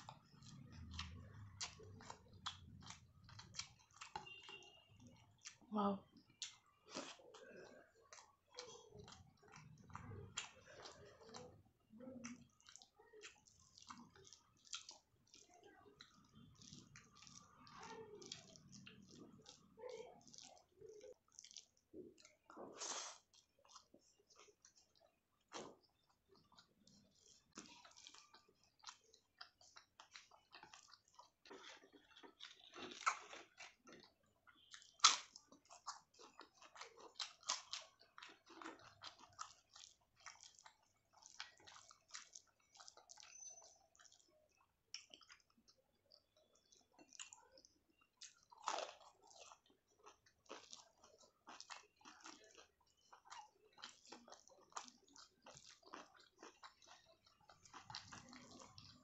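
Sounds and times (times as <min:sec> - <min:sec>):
person chewing food: 0:00.0 - 0:59.0.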